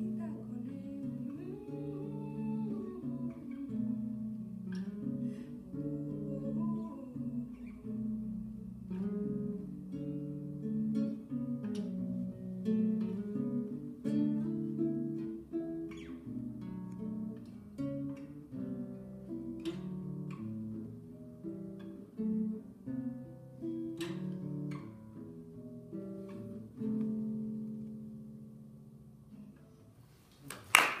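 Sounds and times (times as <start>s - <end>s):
fingerstyle classical guitar: 0.0s - 30.7s.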